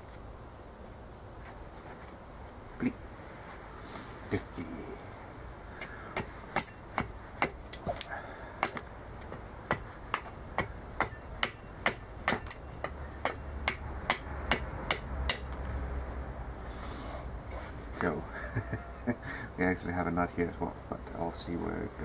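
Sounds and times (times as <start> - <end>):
axe chopping wood: 5.8 - 15.5.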